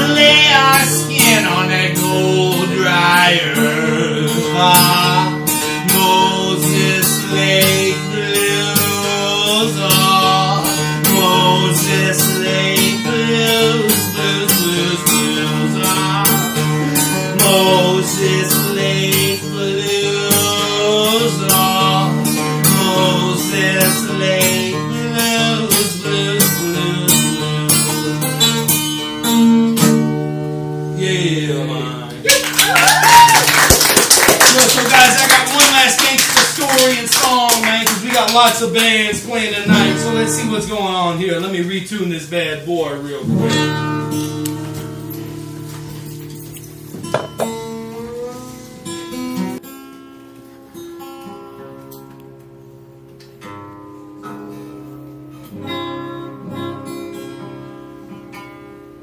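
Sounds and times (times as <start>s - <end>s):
man singing: 0.0s - 28.7s, 30.9s - 31.9s, 34.5s - 43.8s
acoustic guitar strumming: 0.0s - 32.3s, 33.1s - 59.0s.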